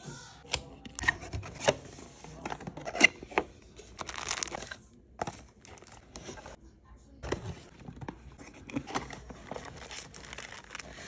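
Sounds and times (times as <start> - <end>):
plastic bag crinkling: 4.0 - 4.7, 9.4 - 11.0.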